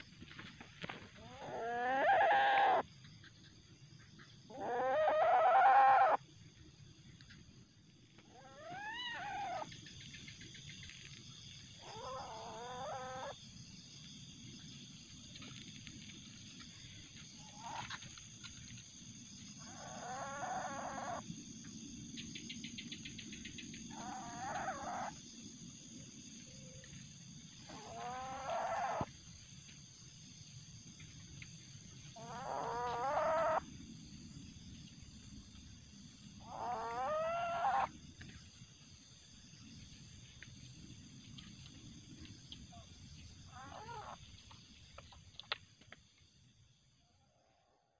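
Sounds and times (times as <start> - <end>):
civet calling: 1.2 - 2.8, 4.2 - 6.2, 8.3 - 11.2, 11.8 - 13.4, 19.6 - 21.2, 22.6 - 25.2, 27.6 - 29.1, 32.1 - 33.7, 36.4 - 38.0, 43.5 - 44.3.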